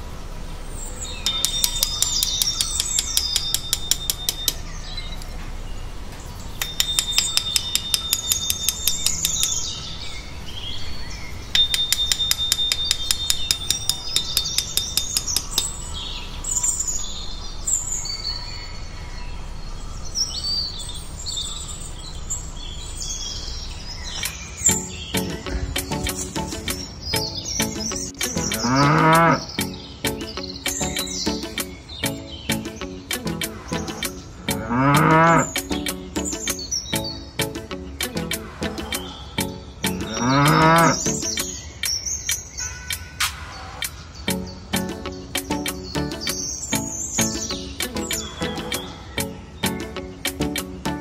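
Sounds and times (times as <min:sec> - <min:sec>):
birds chirping and calling: 0:00.7 - 0:51.0
bird trilling: 0:01.2 - 0:04.8, 0:06.6 - 0:09.8, 0:11.6 - 0:16.0, 0:24.2 - 0:51.0.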